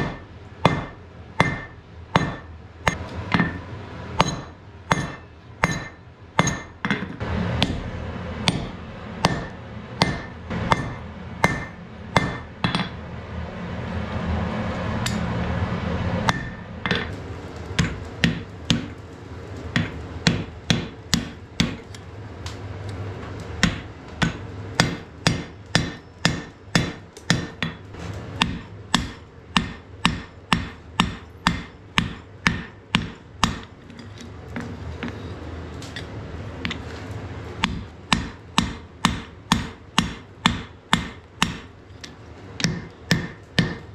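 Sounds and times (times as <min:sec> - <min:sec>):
hammer striking iron on anvil: 0:00.0 - 0:13.0, 0:16.2 - 0:17.1, 0:17.8 - 0:19.0, 0:19.7 - 0:21.9, 0:23.6 - 0:33.8, 0:37.6 - 0:41.7, 0:42.6 - 0:43.9
steady rushing noise: 0:07.2 - 0:25.4.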